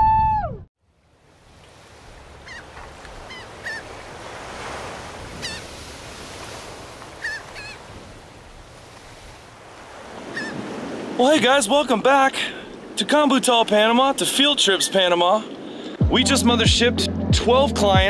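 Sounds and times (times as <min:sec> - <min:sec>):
ocean surf: 0:00.9 - 0:16.6
bird squawking: 0:02.4 - 0:03.9, 0:05.4 - 0:05.6, 0:07.2 - 0:07.8, 0:10.3 - 0:10.6.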